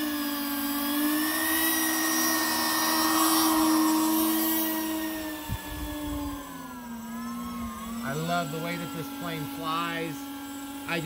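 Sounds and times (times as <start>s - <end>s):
electric ducted fans whining: 0.0s - 11.0s.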